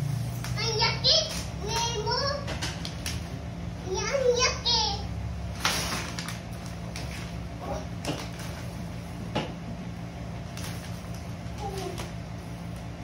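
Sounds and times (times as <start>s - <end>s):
steady low hum: 0.0s - 13.0s
wrapping paper tearing: 5.5s - 8.8s, 10.4s - 12.8s.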